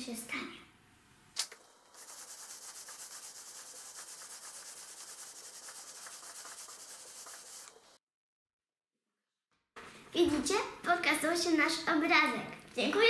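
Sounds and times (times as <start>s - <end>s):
iron rubbing over paper: 1.9s - 8.0s.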